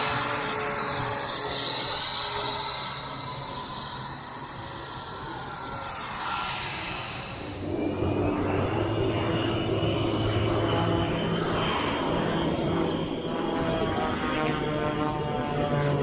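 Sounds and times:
aircraft engine whine and drone: 0.0 - 16.0.

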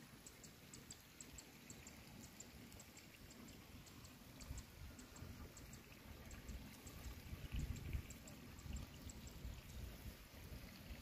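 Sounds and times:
soft high ticks: 0.2 - 9.4.

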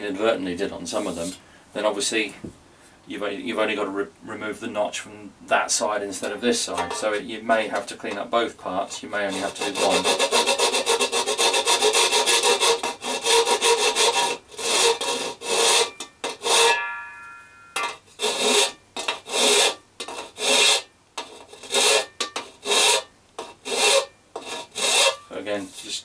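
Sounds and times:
metal dome ringing: 6.7 - 7.3, 15.9 - 18.0
file rasping on metal: 8.9 - 16.8, 17.8 - 25.9.

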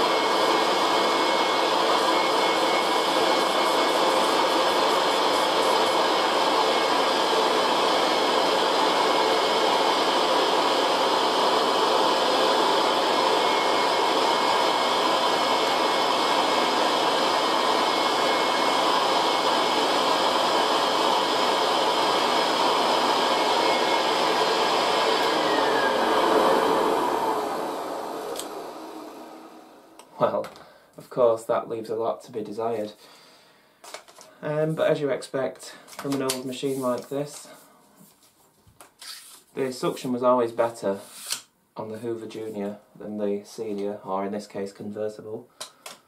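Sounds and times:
vacuum cleaner running: 0.0 - 30.3
motor winding down: 1.1 - 30.0.

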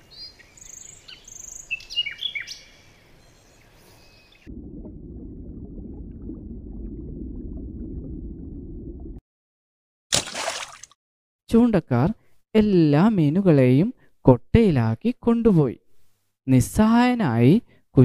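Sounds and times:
bird chirps and whistling calls: 0.2 - 4.5
muffled underwater rumble: 4.5 - 9.2.

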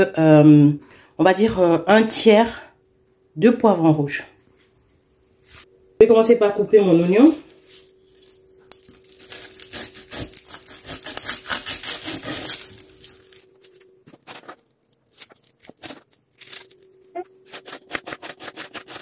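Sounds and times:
knife cutting onion on board: 9.3 - 13.0, 17.2 - 19.0.

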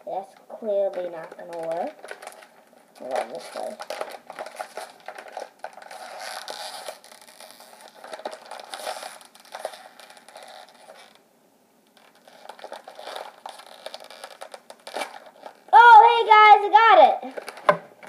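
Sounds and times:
candy pouch crinkling: 0.6 - 11.2, 11.9 - 16.2, 17.2 - 18.0.

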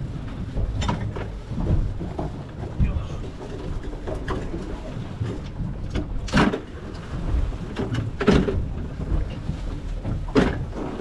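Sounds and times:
low rumble of wind and sea: 0.0 - 11.0
loud rushes of water: 2.7 - 5.4.

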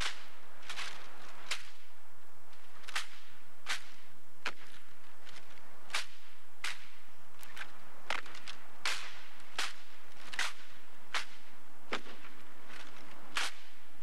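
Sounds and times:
gloved hands slapping rifles: 2.8 - 13.7.

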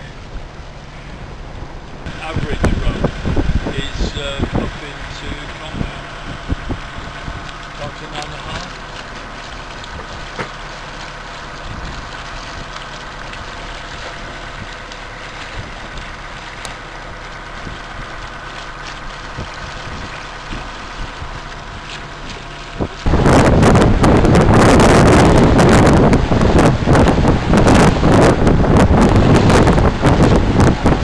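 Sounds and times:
mechanical hum: 0.0 - 31.0
water rushing past hull: 0.0 - 31.0
wind buffeting microphone: 1.1 - 31.0.

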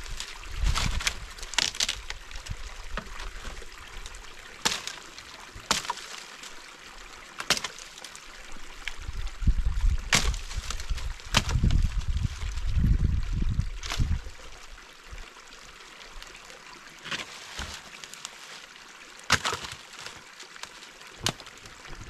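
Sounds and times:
dry branches snapping: 0.0 - 6.6, 7.4 - 8.2, 10.1 - 12.7, 13.8 - 14.3, 17.0 - 18.6, 19.3 - 21.8
small stream trickling: 0.0 - 22.0.

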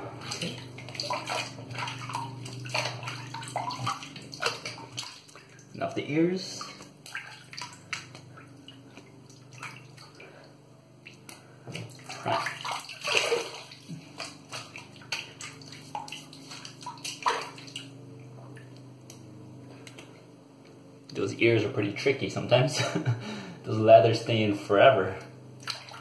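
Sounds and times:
water splashing at a sink: 0.2 - 5.9, 6.6 - 10.4, 11.0 - 18.8, 25.6 - 26.0.

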